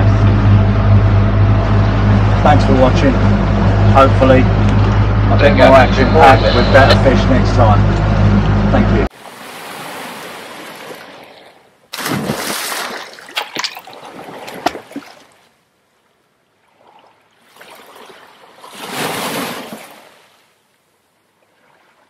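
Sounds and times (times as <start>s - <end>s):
rush of water: 9.1s - 15.6s, 16.5s - 20.6s
loud water splash with spatters: 9.2s - 15.4s, 16.8s - 20.3s.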